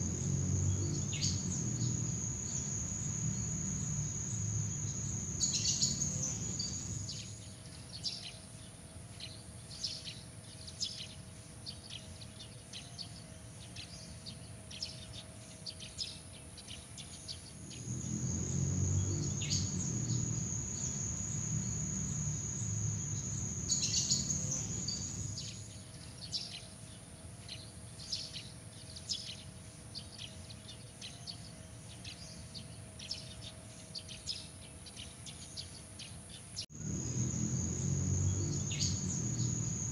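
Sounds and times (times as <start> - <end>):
low rumble: 0.0 - 7.2
insect trills: 0.0 - 7.4, 17.5 - 25.8, 36.7 - 39.9
insect chirps: 0.0 - 8.1, 17.0 - 26.5, 36.6 - 39.9.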